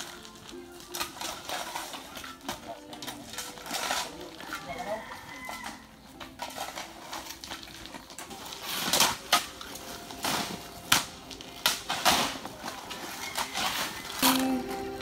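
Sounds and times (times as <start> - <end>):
shovels scraping sand and gravel: 8.2 - 14.6.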